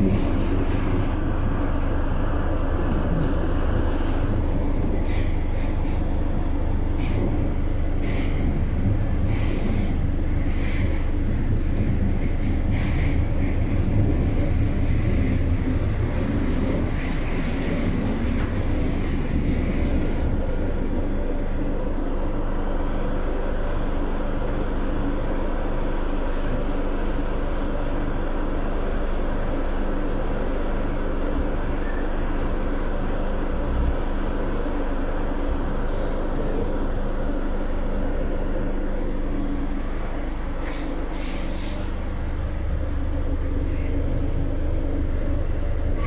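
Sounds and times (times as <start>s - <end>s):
low electric hum: 0.0s - 46.0s
train wheels rumbling on rails: 0.0s - 46.0s.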